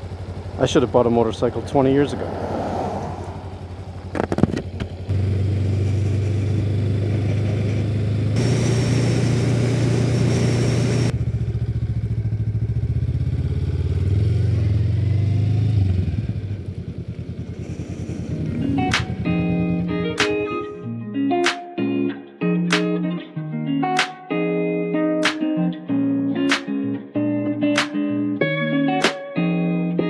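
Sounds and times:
motorcycle engine running: 0:00.0 - 0:02.2, 0:03.1 - 0:20.7
rushing noise: 0:02.0 - 0:04.0, 0:05.2 - 0:11.1
clicks: 0:18.5 - 0:19.1.

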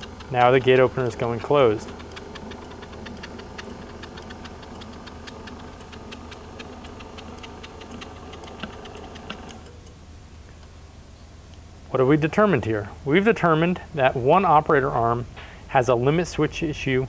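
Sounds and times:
fast uneven ticking: 0:00.0 - 0:10.0
gate opener motor humming: 0:00.0 - 0:10.0.

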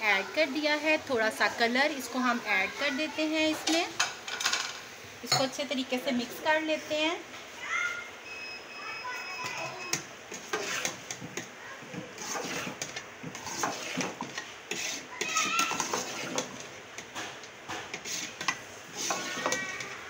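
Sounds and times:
metal spoon scraping metal pot: 0:10.3 - 0:11.2, 0:12.2 - 0:16.6, 0:18.0 - 0:20.0.

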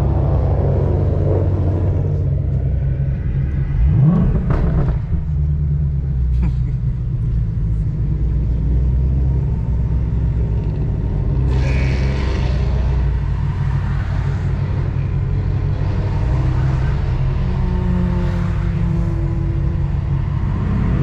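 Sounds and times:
car engine low rumble: 0:00.0 - 0:21.0.

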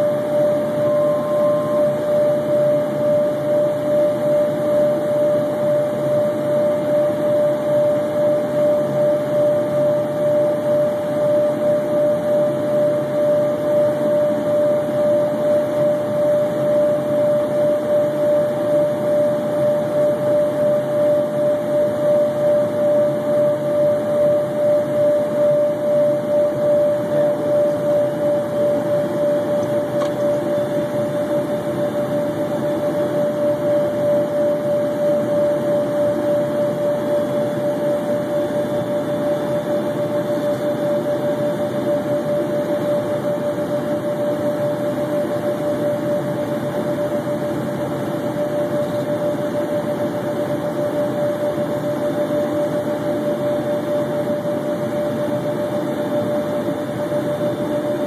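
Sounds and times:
steady tone: 0:00.0 - 0:02.7
jet engine drone: 0:00.0 - 0:58.0.

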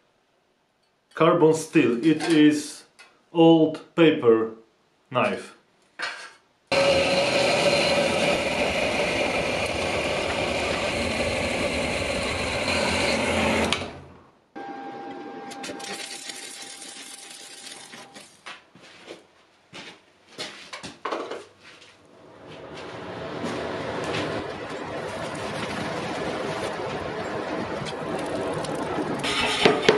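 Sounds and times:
band saw grinding metal: 0:06.7 - 0:14.1.

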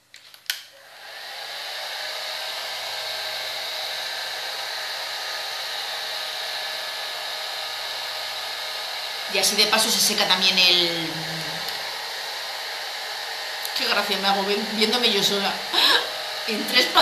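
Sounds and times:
hair dryer blowing: 0:00.6 - 0:17.0
hair dryer switch click: 0:11.6 - 0:11.9.

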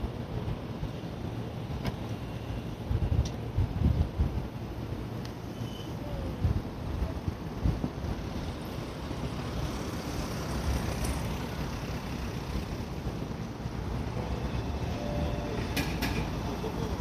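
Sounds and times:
electric train equipment humming: 0:11.5 - 0:17.0.

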